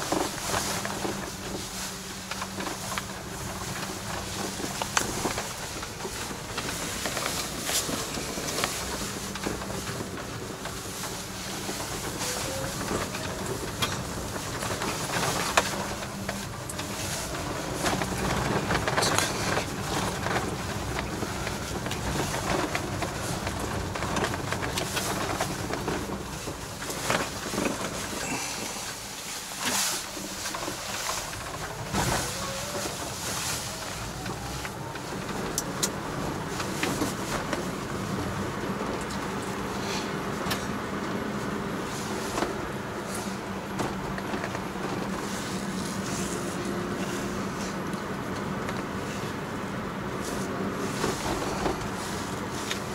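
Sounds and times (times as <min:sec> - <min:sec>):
cab rattles and knocks: 0:00.0 - 0:39.8
truck engine drone: 0:00.0 - 0:52.9.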